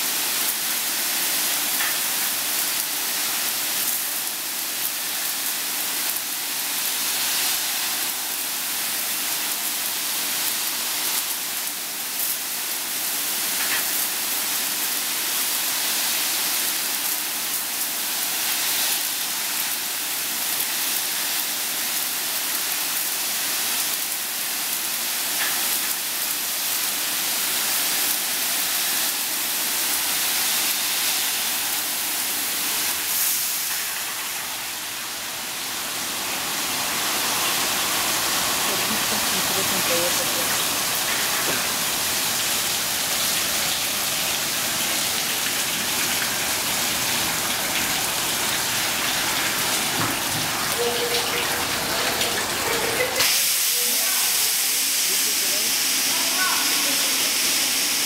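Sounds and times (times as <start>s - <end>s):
water jets spraying: 15.7s - 58.0s.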